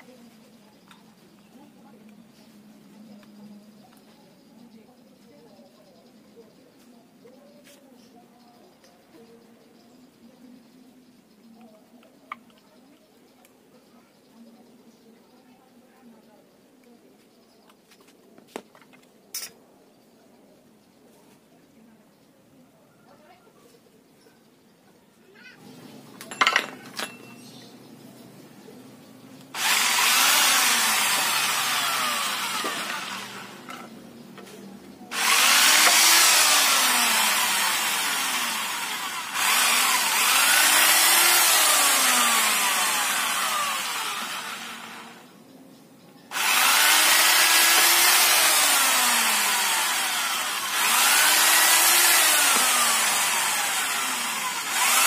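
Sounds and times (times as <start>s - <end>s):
electric drill boring into wood: 29.6s - 33.9s, 35.1s - 45.3s, 46.3s - 55.0s.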